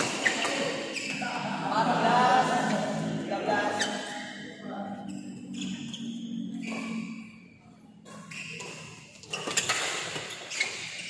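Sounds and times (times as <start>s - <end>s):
court shoes squeaking: 0.0s - 1.3s, 3.7s - 4.4s, 5.0s - 11.0s.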